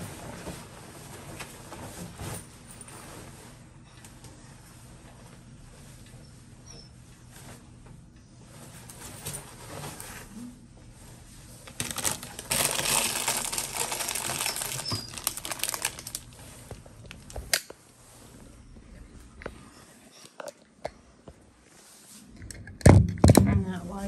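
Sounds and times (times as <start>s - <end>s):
plastic wrapper crinkling: 11.6s - 17.5s.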